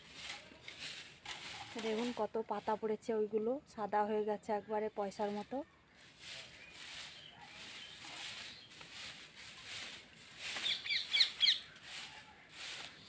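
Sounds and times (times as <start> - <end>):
broom sweeping dry leaves: 0.0 - 3.2, 4.9 - 13.0
bird chirping: 5.6 - 8.8, 10.5 - 11.9.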